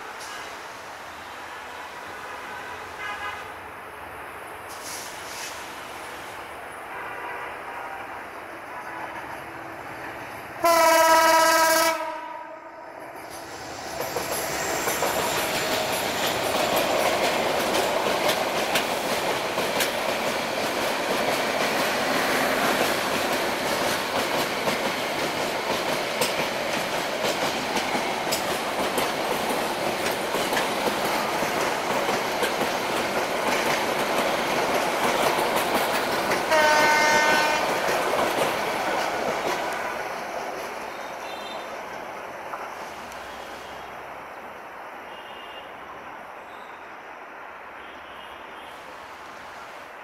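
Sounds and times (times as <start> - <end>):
diesel locomotive passing: 0.0 - 45.1
train coaches rumbling: 0.0 - 45.1
train horn: 2.0 - 3.6, 6.9 - 9.4, 10.6 - 13.0, 36.5 - 37.9, 45.1 - 45.8
wheels clicking over rail joints: 13.2 - 41.4.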